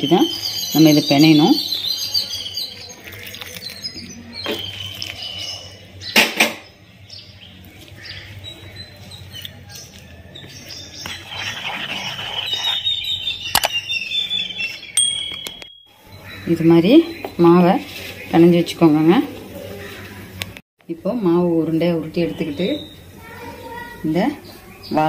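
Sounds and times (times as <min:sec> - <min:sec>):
birds chirping: 0:00.0 - 0:20.6, 0:21.4 - 0:25.0
whisk scraping plastic bowl: 0:11.0 - 0:13.0.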